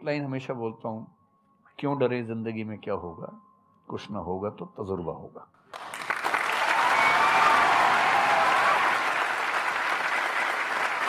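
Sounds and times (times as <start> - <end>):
audience applauding: 5.7 - 11.0
people cheering: 5.8 - 11.0.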